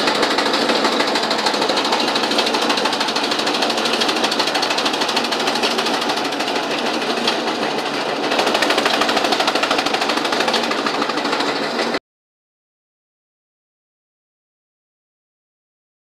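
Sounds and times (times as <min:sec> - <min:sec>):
chaff cutter clattering: 0:00.0 - 0:12.0.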